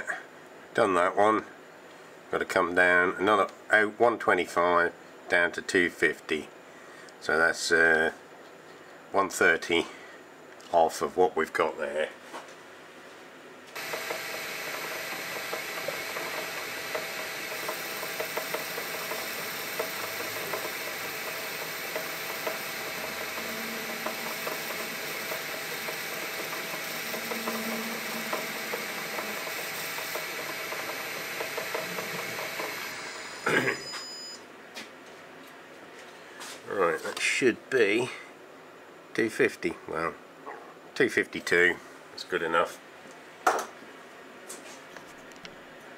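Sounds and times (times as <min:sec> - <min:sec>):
metal lathe running: 0:13.8 - 0:33.6.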